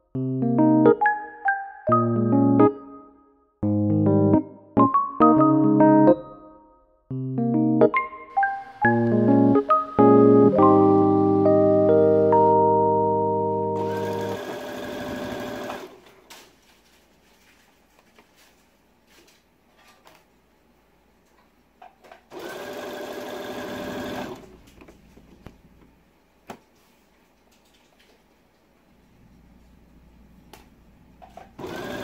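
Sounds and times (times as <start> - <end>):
sewing machine stitching: 13.8 - 16.2, 22.3 - 24.6, 31.4 - 32.0.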